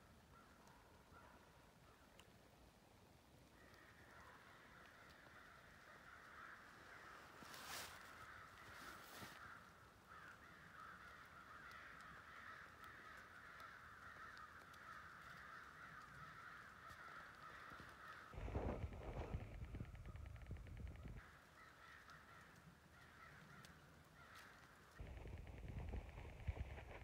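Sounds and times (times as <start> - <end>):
distant flock of birds chattering: 3.6 - 27.0.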